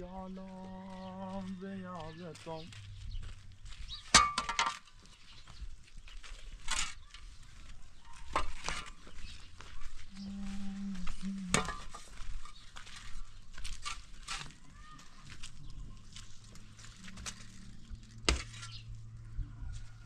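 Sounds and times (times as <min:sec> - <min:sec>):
shovel scraping stony dirt: 0:06.2 - 0:07.6, 0:08.2 - 0:10.0, 0:11.1 - 0:19.0.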